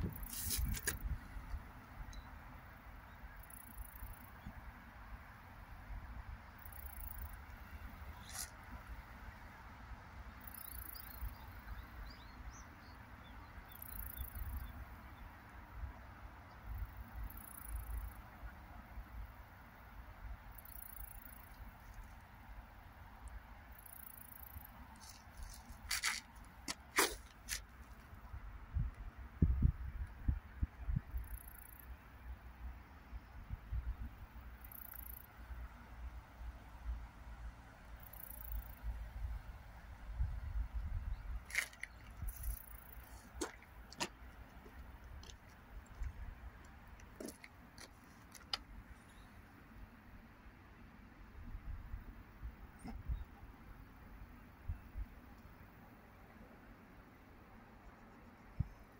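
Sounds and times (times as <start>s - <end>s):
wind rumbling on microphone: 0.0s - 2.0s, 28.2s - 31.2s, 40.0s - 42.7s.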